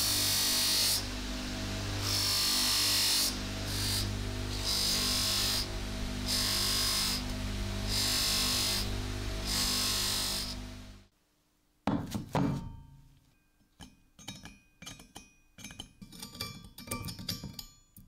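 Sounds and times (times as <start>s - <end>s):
motor hum: 0.0s - 11.1s.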